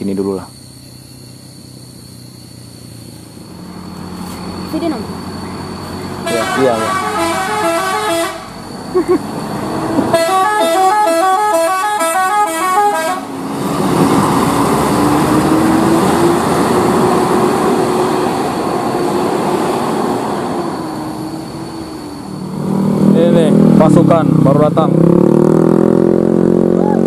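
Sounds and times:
diesel bus engine running: 0.0s - 25.0s
multi-tone musical bus horn: 6.2s - 8.6s, 10.0s - 13.4s.

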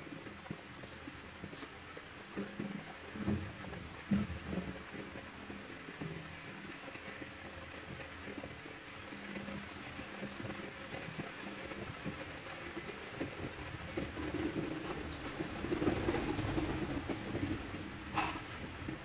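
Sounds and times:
pencil scratching on paper: 5.5s - 5.8s, 7.4s - 10.8s, 14.3s - 16.8s.

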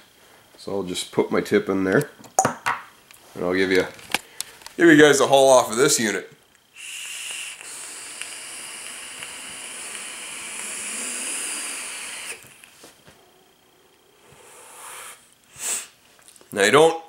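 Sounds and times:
vape hissing: 6.7s - 16.0s
breathy exhale: 6.8s - 12.5s, 13.2s - 16.0s.

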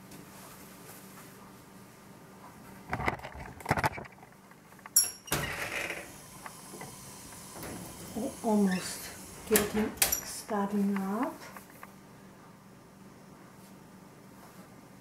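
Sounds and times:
oven door swinging down: 6.7s - 10.4s.

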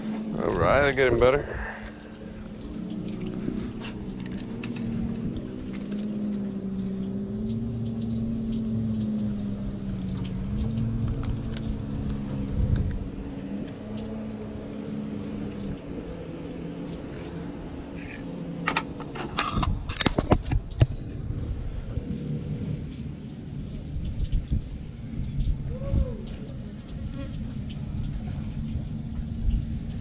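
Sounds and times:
engine idling: 0.0s - 19.4s.

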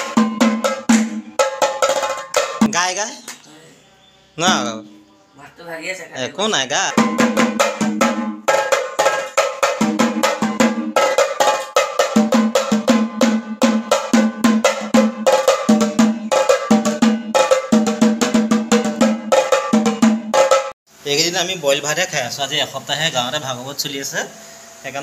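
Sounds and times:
small drums beaten fast with sticks: 0.0s - 3.1s, 4.4s - 4.8s, 6.6s - 20.8s.

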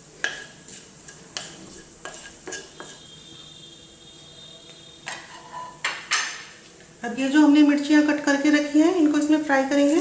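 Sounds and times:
seeds sizzling in hot oil: 0.0s - 3.3s.

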